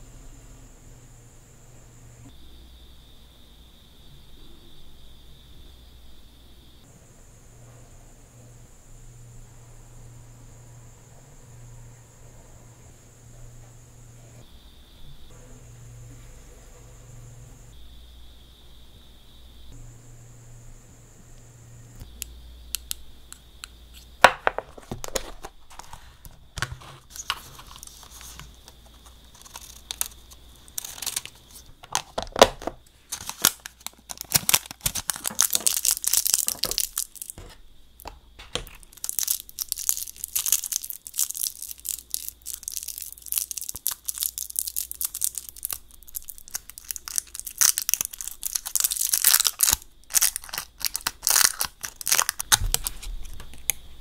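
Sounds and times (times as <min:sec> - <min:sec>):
foil being crumpled: 0:27.0 - 0:32.5, 0:33.1 - 0:37.4, 0:38.7 - 0:53.8.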